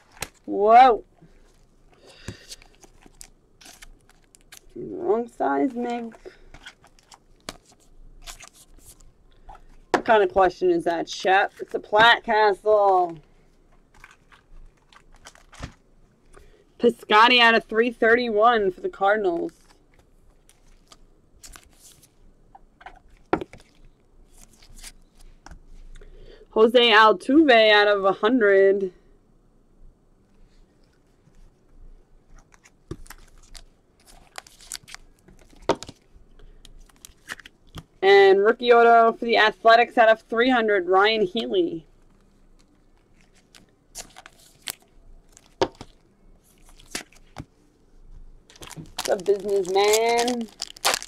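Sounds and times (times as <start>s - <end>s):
cards rustling and scraping: 1.3s - 4.7s, 5.6s - 9.9s, 13.8s - 16.4s, 19.4s - 22.2s, 22.8s - 25.9s, 32.2s - 37.9s, 42.0s - 47.6s, 48.5s - 51.0s.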